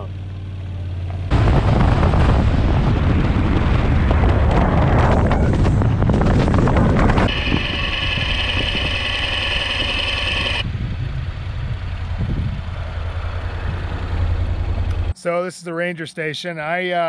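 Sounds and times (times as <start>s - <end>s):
wind rushing over microphone: 1.3s - 14.0s
steady high whine: 6.3s - 10.8s.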